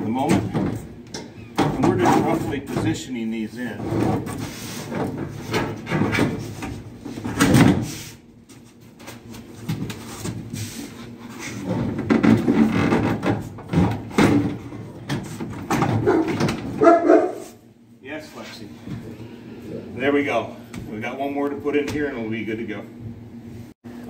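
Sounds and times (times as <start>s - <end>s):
plastic conduit knocking and scraping: 3.8s - 7.8s, 11.4s - 16.8s.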